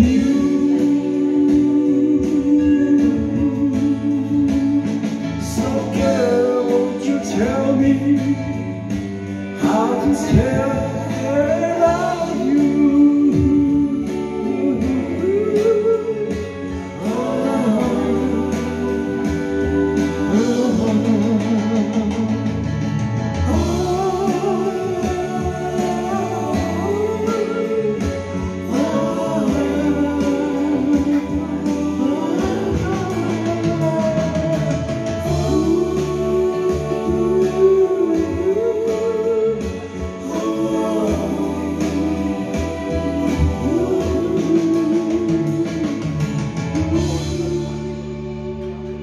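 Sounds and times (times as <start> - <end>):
man singing into a microphone: 0.0 - 22.8, 23.4 - 49.0
pop ballad backing track: 0.0 - 49.0.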